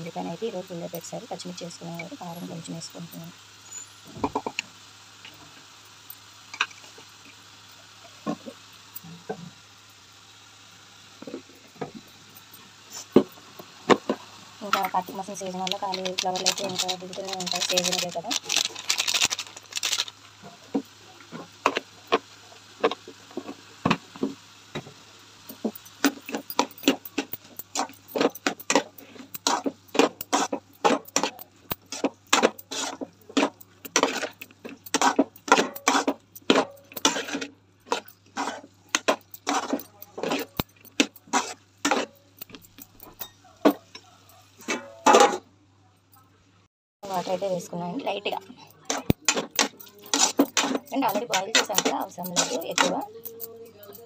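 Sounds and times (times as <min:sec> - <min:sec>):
metal ladle scraping a pot: 0:25.6 - 0:43.3, 0:48.3 - 0:54.0.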